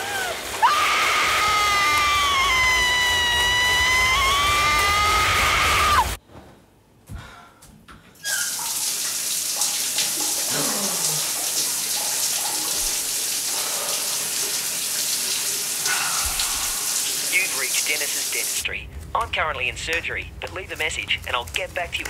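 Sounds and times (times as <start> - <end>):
shower running: 0.0 - 6.2, 8.2 - 18.7
woman screaming: 0.0 - 6.2.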